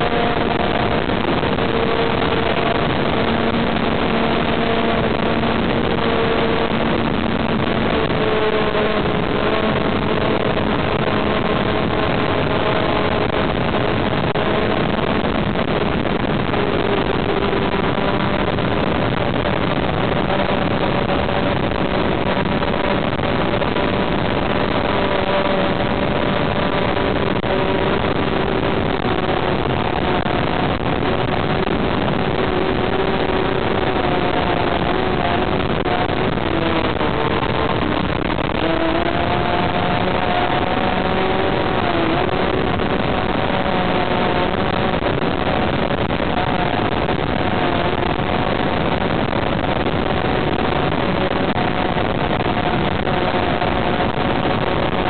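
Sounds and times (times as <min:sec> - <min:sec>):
airflow rush: 0:00.0 - 0:55.0.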